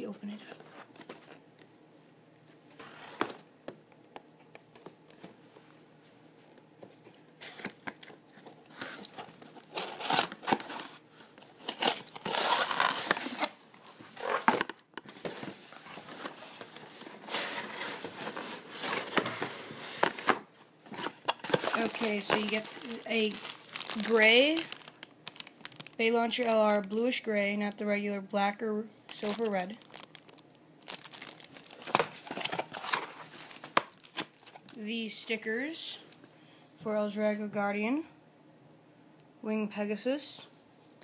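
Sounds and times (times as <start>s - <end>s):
cardboard and plastic crinkling: 7.4s - 27.2s, 29.1s - 34.8s.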